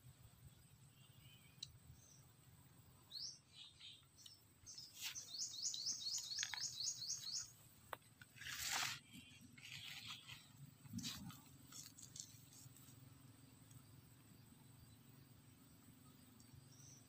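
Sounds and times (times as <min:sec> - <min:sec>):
bird chirping: 0:00.4 - 0:07.7, 0:09.0 - 0:17.0
rustling: 0:06.1 - 0:13.0.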